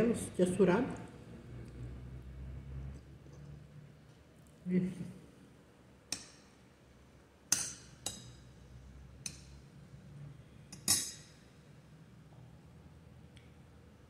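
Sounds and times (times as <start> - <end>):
metal utensil clinking on glass: 10.7 - 11.4.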